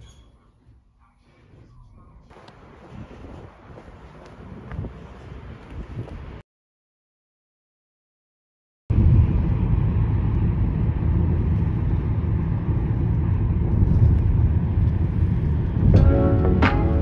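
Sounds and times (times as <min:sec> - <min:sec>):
low outdoor rumble: 0:08.9 - 0:17.0.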